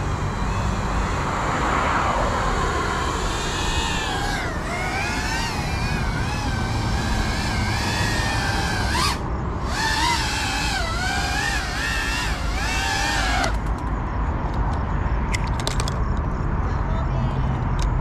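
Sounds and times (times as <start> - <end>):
drone motors whining: 0.0 - 14.0.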